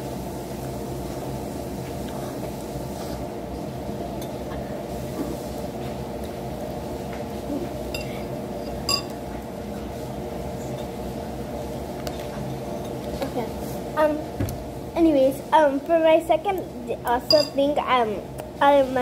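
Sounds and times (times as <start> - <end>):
low room hum: 0.0 - 19.0
dish clinking: 8.7 - 9.2, 17.3 - 17.6
tableware clicks: 8.9 - 9.2.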